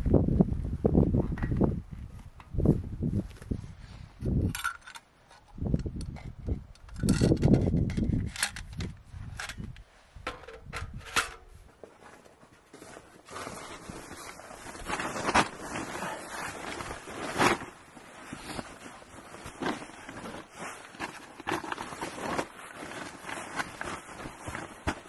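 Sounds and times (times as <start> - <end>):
plastic tarp rustling: 11.5 - 25.0.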